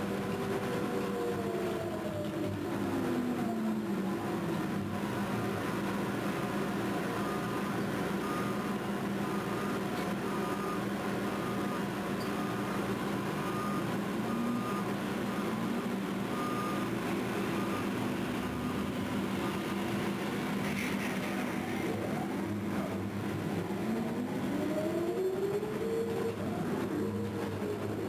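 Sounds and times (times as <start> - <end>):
heavy machinery low drone: 0.0 - 28.0
high beeping alarm: 13.4 - 19.7.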